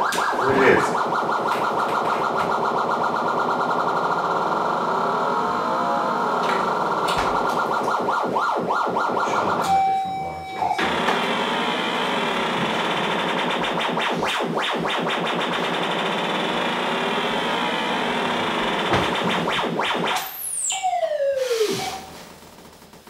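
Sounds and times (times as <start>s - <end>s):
synthesizer drone sweeping: 0.0s - 22.4s
single steady synth tone: 5.0s - 6.4s, 9.4s - 12.1s.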